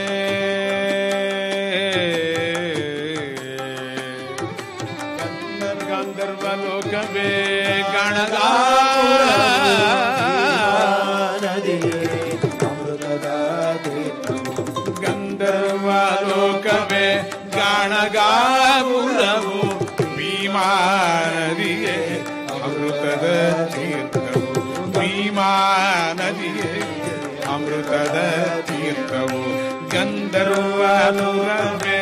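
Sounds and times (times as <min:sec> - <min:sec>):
light percussion: 0:00.0 - 0:32.0
person singing devotional song: 0:00.0 - 0:32.0.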